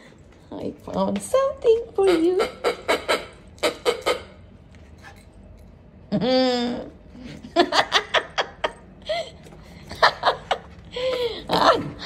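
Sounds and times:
woman laughing: 6.1 - 12.0.

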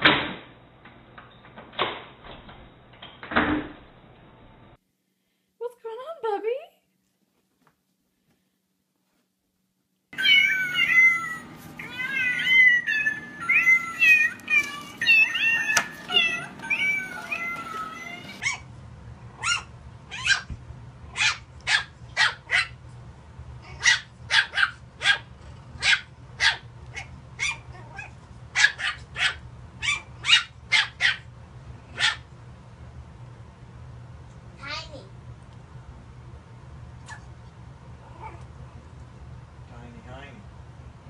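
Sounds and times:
cat meowing: 10.2 - 18.5
puppy yipping: 10.2 - 18.7, 19.4 - 22.8, 23.7 - 31.3, 32.0 - 32.2.

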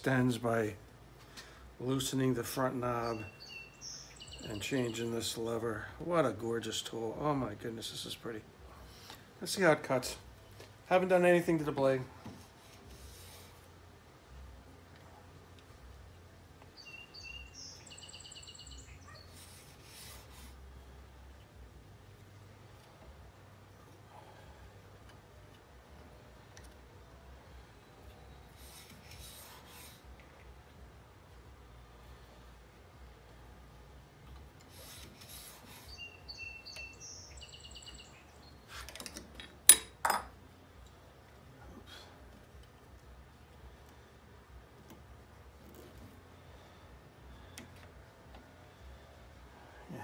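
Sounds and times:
faint steady hum: 0.0 - 50.0
small bird singing: 2.9 - 5.5, 16.7 - 19.6, 34.8 - 38.8.

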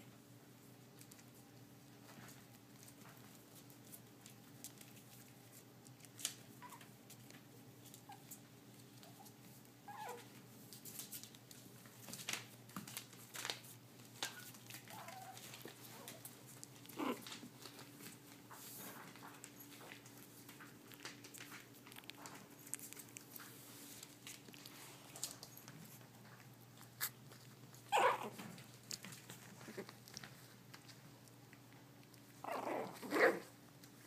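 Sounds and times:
faint steady hum: 0.0 - 34.0
paws clicking on floor: 0.8 - 34.0
puppy whimpering: 6.6 - 6.9, 7.9 - 10.4, 14.2 - 17.4, 26.8 - 28.4, 32.4 - 33.5.

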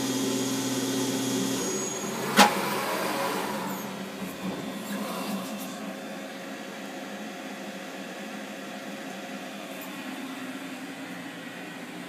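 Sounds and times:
milling machine humming: 0.0 - 6.8.

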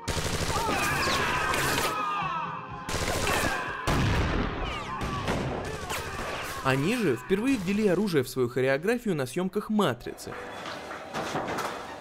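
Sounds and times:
gunfire: 0.0 - 1.9, 2.9 - 6.6.

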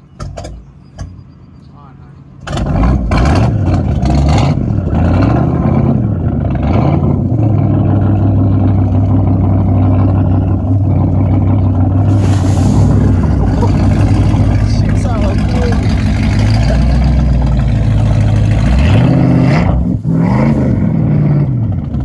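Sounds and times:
boat engine revving and idling: 0.0 - 22.0
churning water: 2.5 - 19.9.

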